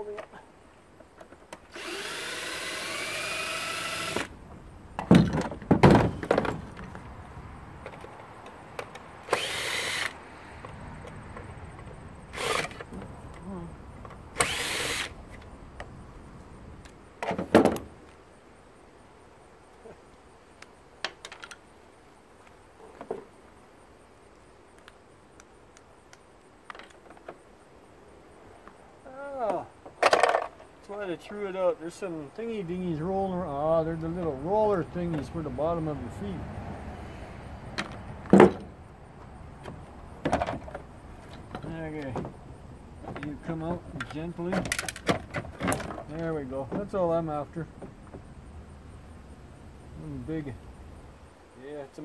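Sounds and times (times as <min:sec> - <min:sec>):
cordless drill whining: 0:01.7 - 0:04.3, 0:09.2 - 0:10.2, 0:12.3 - 0:12.8, 0:14.4 - 0:15.2
knocks and plastic clatter: 0:05.0 - 0:07.0, 0:17.2 - 0:17.9, 0:29.8 - 0:30.7, 0:37.8 - 0:38.7, 0:39.6 - 0:42.4, 0:43.0 - 0:47.0
small clicks of parts handled: 0:20.6 - 0:21.6, 0:44.0 - 0:46.0.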